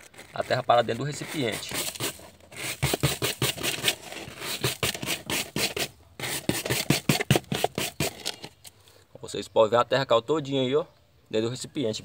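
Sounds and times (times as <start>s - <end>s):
brush scrubbing rubber mat: 0.2s - 8.3s.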